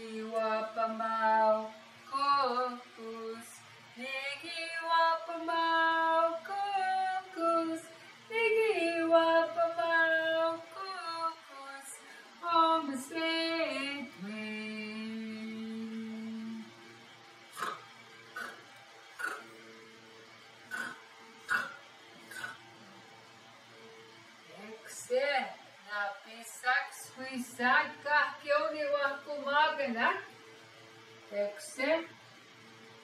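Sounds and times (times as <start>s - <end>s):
woman singing unaccompanied: 0.0s - 16.9s, 24.5s - 30.4s, 31.2s - 32.2s.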